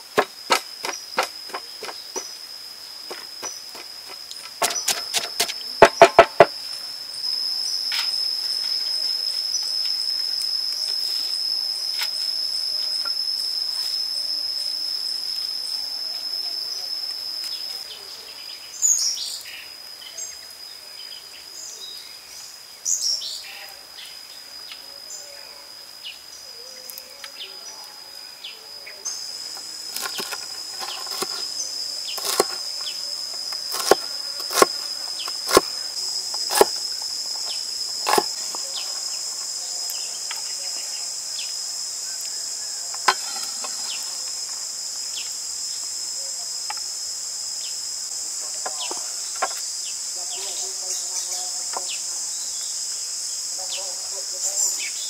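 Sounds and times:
high insect drone: 0.0 - 55.0
knife chopping on wooden board: 32.2 - 32.6, 33.7 - 34.8, 36.4 - 36.8, 38.1 - 38.3.

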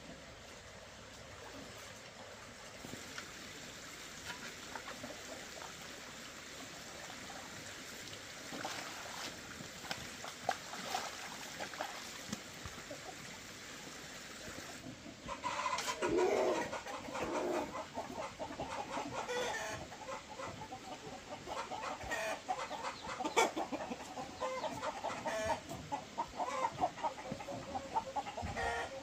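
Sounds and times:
water running and trickling: 1.1 - 14.8
chickens clucking: 4.2 - 6.9, 11.7 - 13.5, 14.5 - 29.0.

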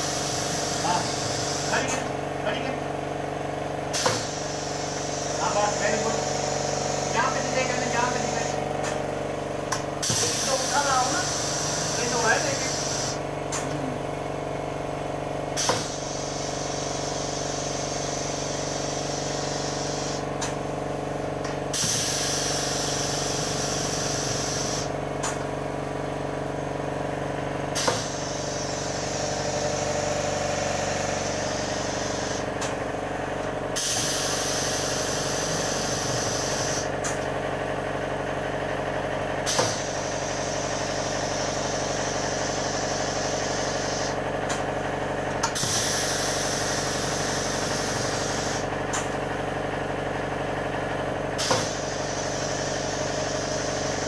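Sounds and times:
pneumatic valves clicking: 0.0 - 2.1, 3.8 - 13.8, 15.5 - 20.7, 21.4 - 25.6, 27.6 - 37.4, 39.4 - 49.4, 51.2 - 54.0
compressed air hissing: 0.0 - 2.2, 3.9 - 9.2, 10.0 - 13.7, 15.5 - 20.3, 21.7 - 25.0, 27.7 - 32.8, 33.8 - 37.2, 39.4 - 44.2, 45.5 - 49.1, 51.4 - 54.0
machine hum: 0.0 - 54.0.

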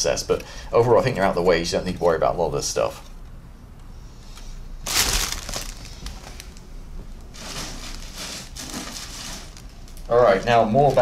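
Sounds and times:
plastic bag crinkly rustle: 4.8 - 6.7, 7.3 - 11.0.

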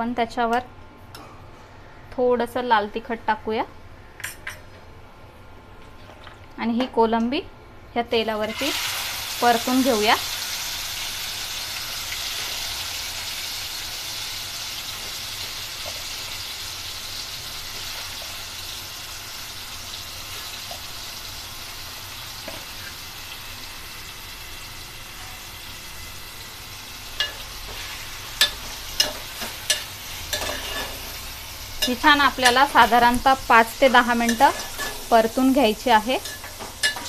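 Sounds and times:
prawns sizzling in hot oil: 8.4 - 37.0.

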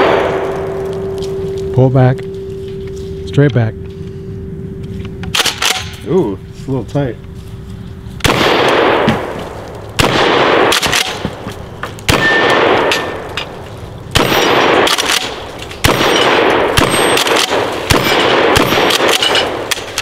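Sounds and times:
shotgun shots echoing: 0.0 - 1.2, 5.3 - 6.0, 8.2 - 11.4, 12.0 - 13.3, 14.1 - 20.0
steel targets ringing: 0.0 - 6.0, 15.9 - 20.0.

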